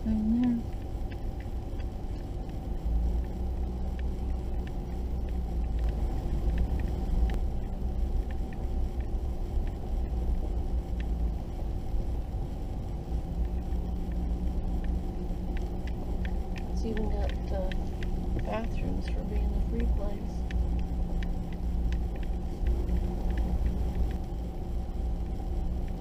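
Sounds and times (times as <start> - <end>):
gravel ticking under tyres: 0.0 - 26.0
low engine and road rumble: 0.0 - 26.0.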